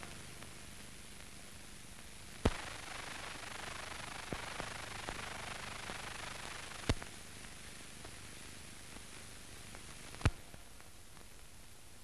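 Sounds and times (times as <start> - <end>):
film soundtrack hiss and crackle: 0.0 - 12.0
sharp pops: 2.4 - 2.8, 10.1 - 10.6.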